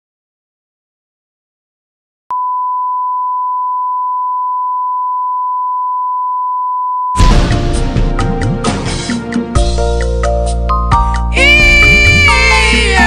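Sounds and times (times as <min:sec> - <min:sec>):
loud music: 0:07.2 - 0:13.0.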